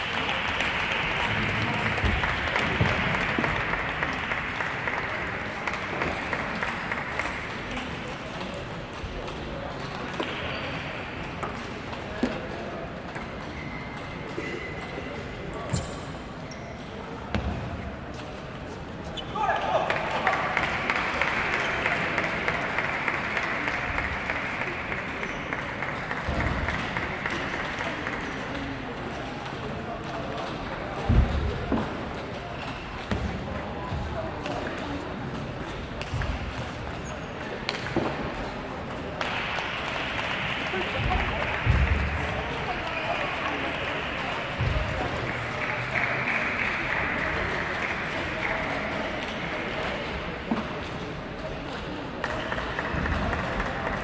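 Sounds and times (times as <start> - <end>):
audience applause: 0.0 - 7.9, 19.6 - 28.7, 39.1 - 49.0.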